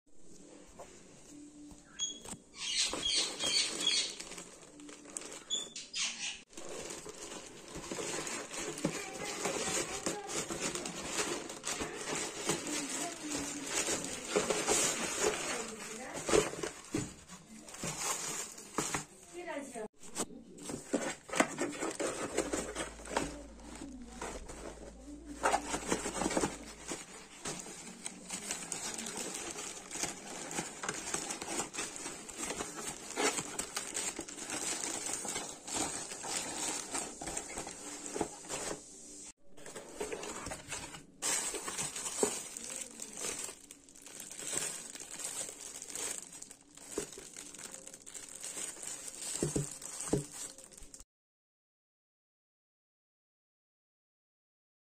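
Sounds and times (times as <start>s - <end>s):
plastic bag crinkling and tearing: 2.2s - 5.8s, 6.4s - 19.2s, 20.7s - 38.8s, 39.5s - 51.0s
cardboard box handling: 6.6s - 19.2s, 20.0s - 38.8s, 39.6s - 50.7s.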